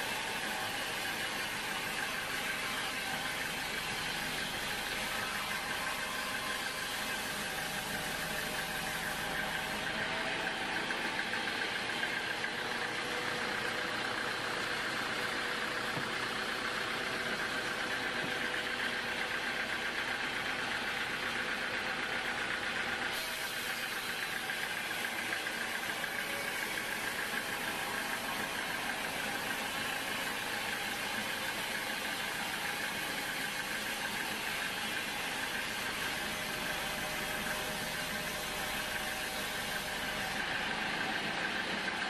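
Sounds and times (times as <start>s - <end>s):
band saw cutting log: 0.0s - 14.3s, 23.2s - 40.5s.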